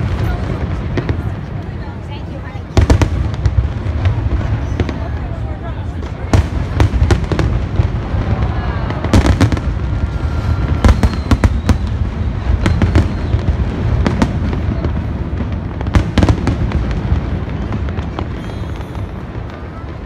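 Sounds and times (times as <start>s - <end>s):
fireworks bangs and crackles: 0.0s - 20.0s
firework whistle: 8.1s - 15.0s, 17.6s - 20.0s.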